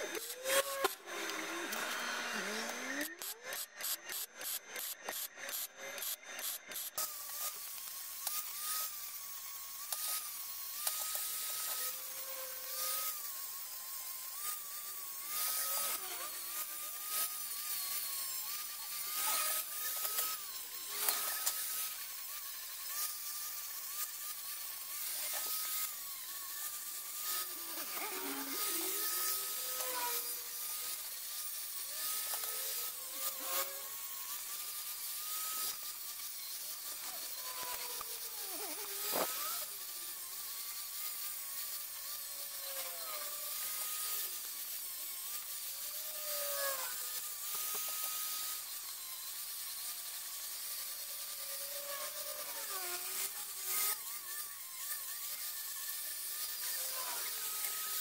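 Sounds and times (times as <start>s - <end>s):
angle grinder grinding steel: 0.0s - 58.0s.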